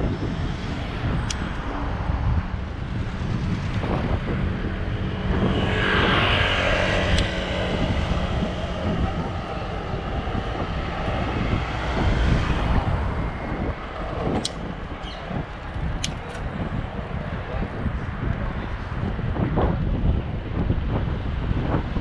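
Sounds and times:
vehicle passing close: 0.0 - 15.6
road traffic rumble: 0.0 - 22.0.

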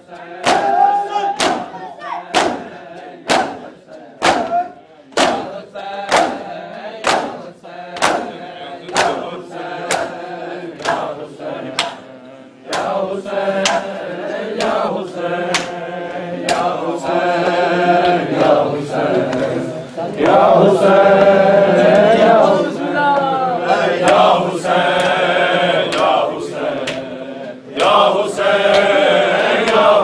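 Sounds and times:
men chanting in a group: 0.0 - 30.0
hands striking chests: 1.4 - 2.7, 4.2 - 4.6, 5.2 - 5.5.

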